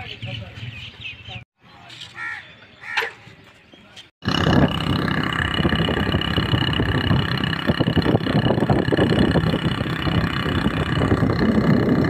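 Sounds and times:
vehicle engine running: 4.2 - 12.0.

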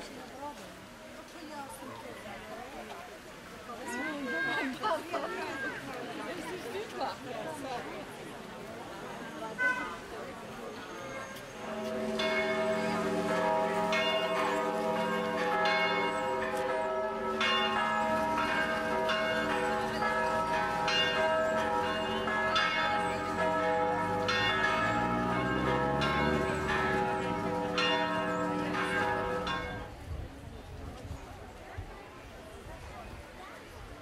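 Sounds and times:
church bells pealing: 11.2 - 30.0.

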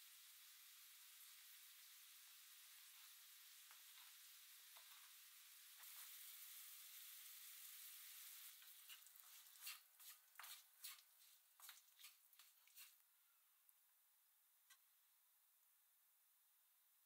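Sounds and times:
vegetables sizzling in a frying pan: 0.0 - 10.2.

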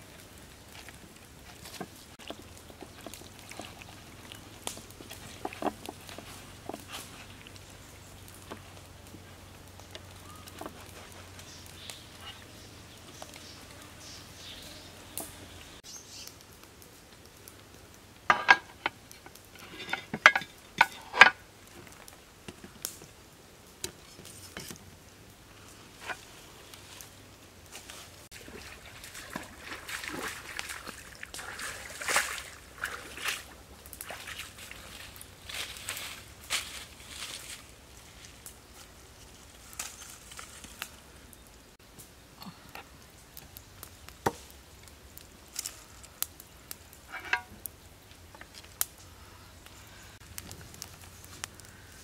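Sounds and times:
food handled on a plate: 18.3 - 21.4
steps splashing in shallow water: 28.3 - 37.6.

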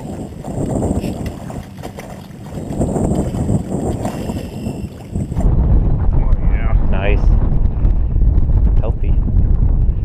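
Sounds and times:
water lapping around boat: 0.0 - 5.5
wind buffeting microphone: 0.0 - 10.0.

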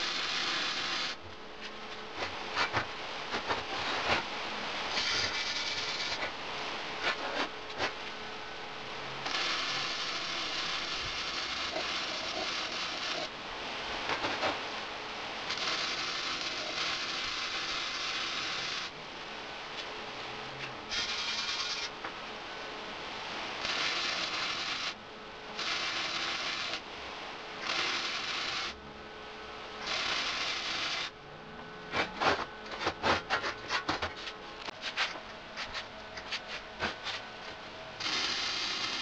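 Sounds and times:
welding arc crackling: 0.0 - 1.2, 4.9 - 6.3, 9.2 - 13.3, 15.5 - 18.9, 20.9 - 21.9, 23.6 - 25.0, 25.6 - 26.8, 27.6 - 28.8, 29.8 - 31.1, 38.0 - 39.0.

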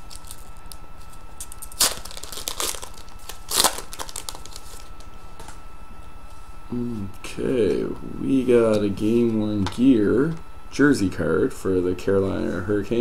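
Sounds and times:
wrapper tearing and crinkling: 0.0 - 5.0.

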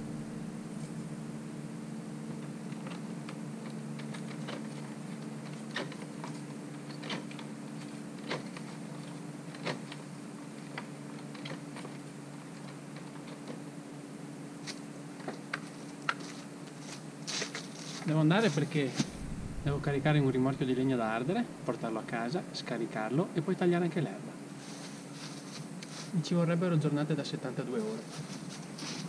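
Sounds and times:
steady low hum: 0.0 - 2.8, 18.3 - 25.8.

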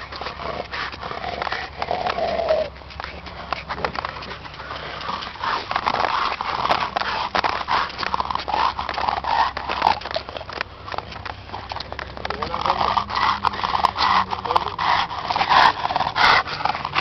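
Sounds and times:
dogs short vocal sounds: 12.6 - 17.0.

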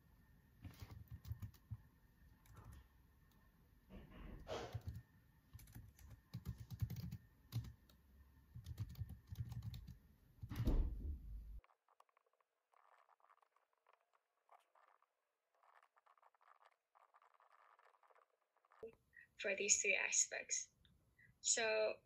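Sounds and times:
laptop keyboard typing: 0.6 - 2.9, 4.6 - 10.0.

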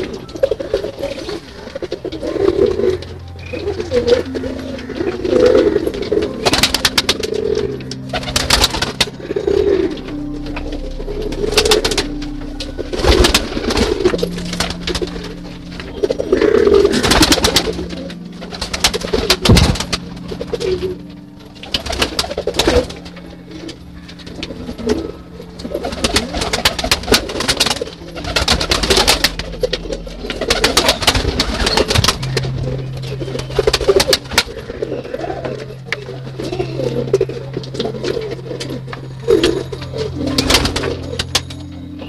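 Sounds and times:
pigeons cooing: 0.0 - 42.0.

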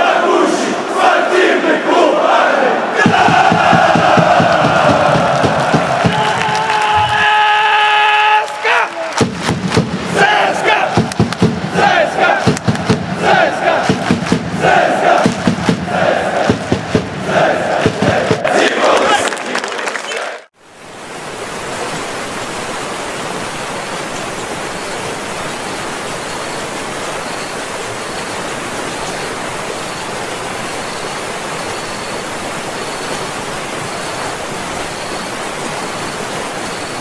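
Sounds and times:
stadium crowd chanting: 0.0 - 7.1, 8.5 - 20.5
waterfall rushing: 0.0 - 19.6, 20.5 - 37.0.

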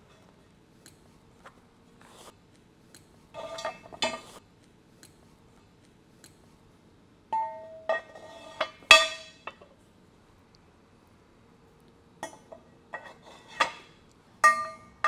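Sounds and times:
steel tubes clanking: 3.3 - 4.4, 7.4 - 9.7, 12.2 - 15.0.

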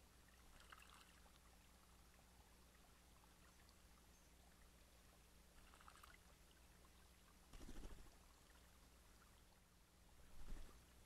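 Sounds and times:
stream water trickling: 0.0 - 11.0
bird wingbeats: 7.5 - 8.2, 10.3 - 10.9.

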